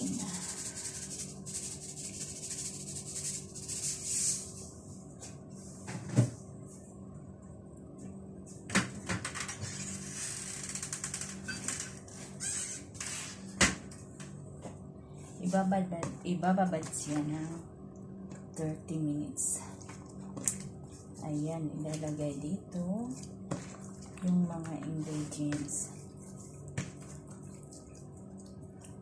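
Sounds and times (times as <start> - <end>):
faint steady hum: 0.0 - 29.0
salt rattling in a plastic shaker: 0.2 - 4.0.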